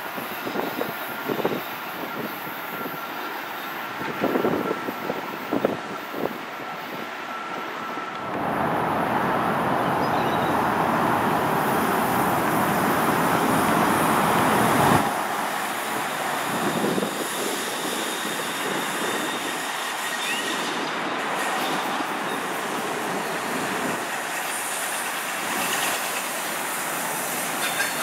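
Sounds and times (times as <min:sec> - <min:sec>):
train rumbling and clicking: 0:00.0 - 0:28.0
train rushing on tracks: 0:00.0 - 0:28.0.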